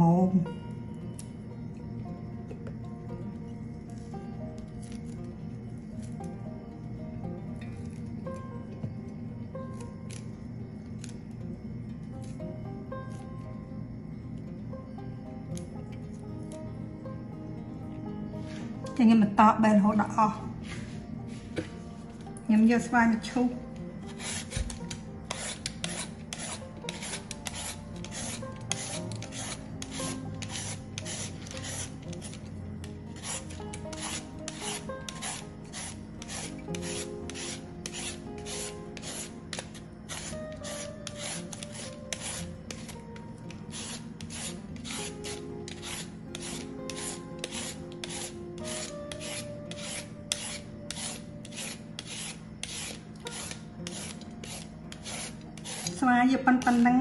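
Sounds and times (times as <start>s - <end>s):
peeler scraping mango: 9.6s - 10.3s, 11.0s - 11.2s, 23.8s - 57.0s.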